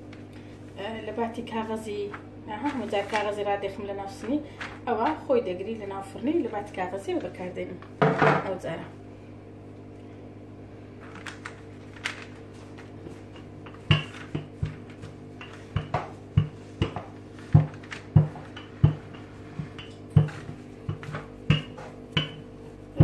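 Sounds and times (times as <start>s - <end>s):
faint steady hum: 0.0s - 23.0s
rolling pin rolling dough: 12.5s - 23.0s
rolling pin thudding on table: 15.8s - 22.4s.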